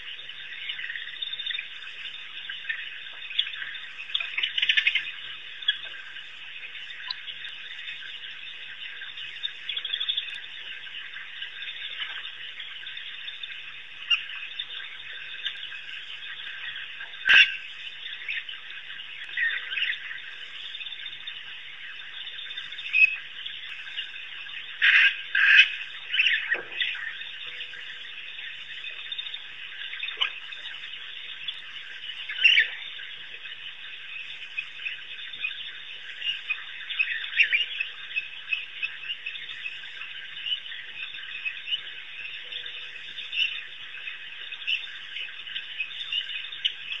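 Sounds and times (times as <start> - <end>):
chorus of calling frogs: 0.0 - 47.0
loud short frog calls: 16.7 - 18.5, 24.7 - 27.8.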